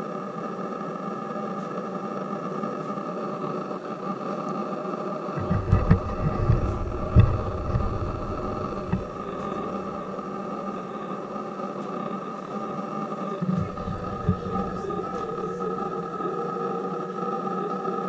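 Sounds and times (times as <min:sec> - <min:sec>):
steady low hum: 0:05.4 - 0:17.5.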